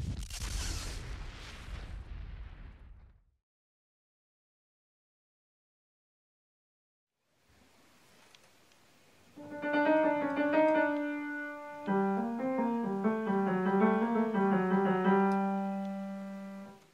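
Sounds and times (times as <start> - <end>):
upright piano playing: 9.4 - 16.9.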